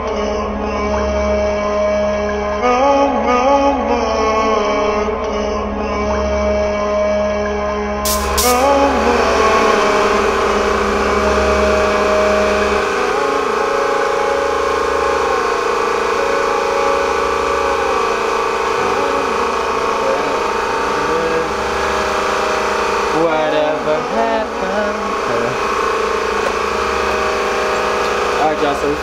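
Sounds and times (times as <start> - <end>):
motor drone: 0.0 - 29.0
faint wavering sounds: 8.4 - 29.0.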